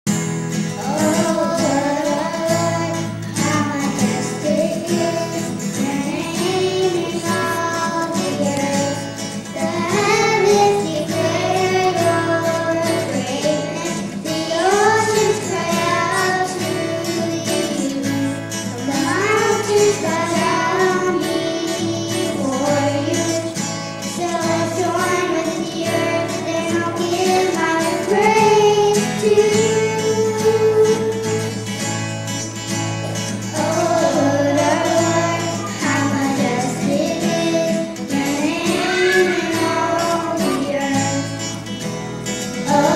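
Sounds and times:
acoustic guitar: 0:00.0 - 0:42.9
children singing: 0:00.5 - 0:31.8, 0:33.0 - 0:41.8, 0:42.4 - 0:42.9.

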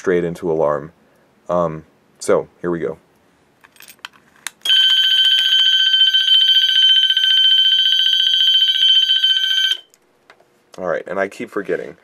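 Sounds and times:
fire alarm bell ringing: 0:04.6 - 0:09.9.

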